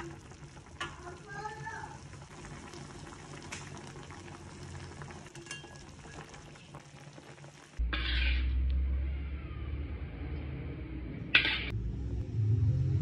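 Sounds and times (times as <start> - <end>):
broth simmering and sizzling: 0.0 - 8.9
low rumble: 7.8 - 13.0.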